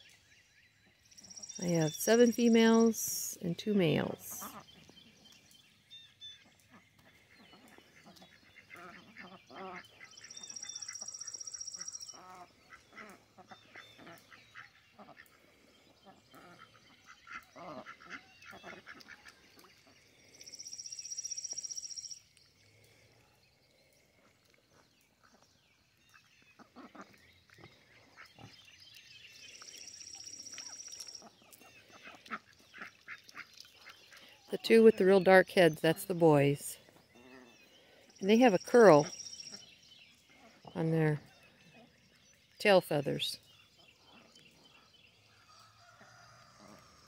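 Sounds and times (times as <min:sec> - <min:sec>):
ducks quacking softly: 0:06.6 - 0:11.1, 0:11.8 - 0:20.0.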